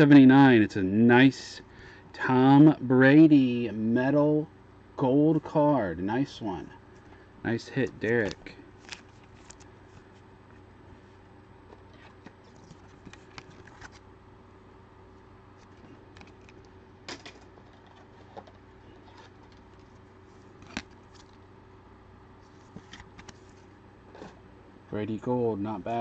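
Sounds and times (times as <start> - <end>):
trading cards clicking and rustling: 7.8 - 10.1, 11.7 - 14.0, 15.6 - 21.4, 22.5 - 24.4.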